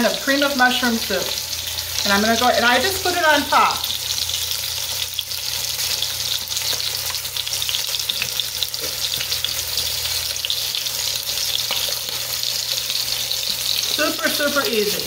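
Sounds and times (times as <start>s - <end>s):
oil sizzling in a pot: 0.0s - 15.0s
crackles and pops: 6.6s - 9.5s.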